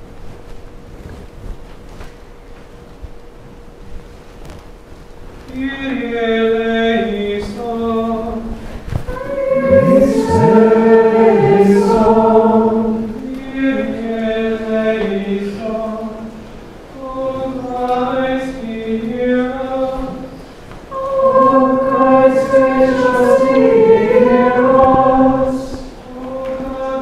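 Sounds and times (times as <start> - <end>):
choir singing unaccompanied chant: 9.1 - 16.3, 17.0 - 20.3, 20.9 - 27.0.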